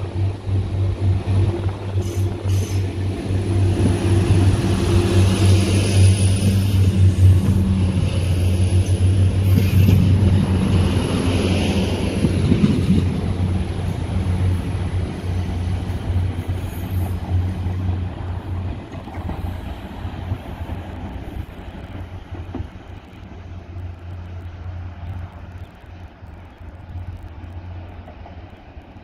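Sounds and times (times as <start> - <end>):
diesel train engines droning: 0.0 - 29.0.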